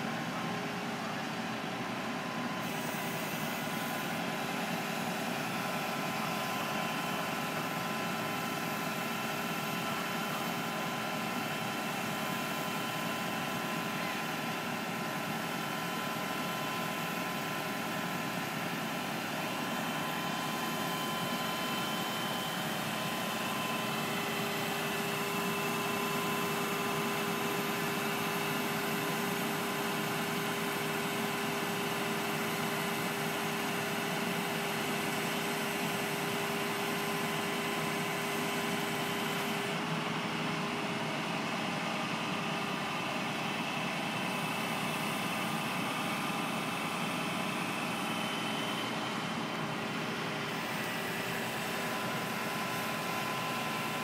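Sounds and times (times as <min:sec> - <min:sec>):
hydraulic whine: 0:44.1 - 0:54.0.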